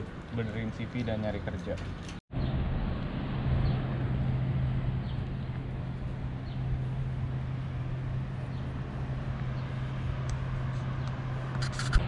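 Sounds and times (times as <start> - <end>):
road traffic rumble: 0.0 - 12.0
continuous low hum: 2.5 - 12.0.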